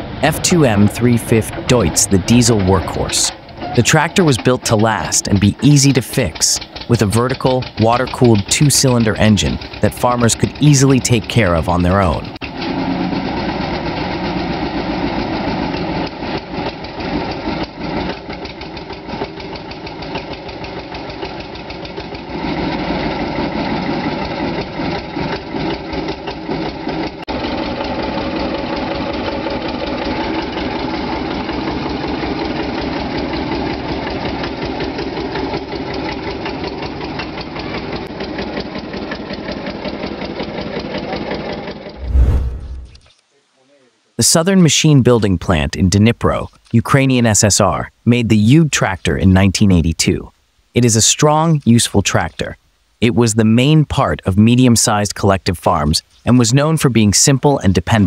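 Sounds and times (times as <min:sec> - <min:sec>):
diesel tractor engine knocking: 0:00.0 - 0:42.0.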